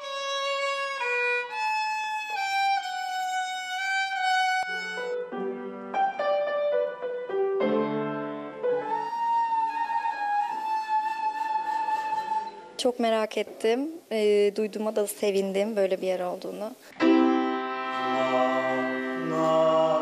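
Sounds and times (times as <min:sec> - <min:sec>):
violin bowed melody: 0:00.0 - 0:12.8, 0:17.0 - 0:20.0
piano notes and chords: 0:04.7 - 0:12.8, 0:17.0 - 0:20.0.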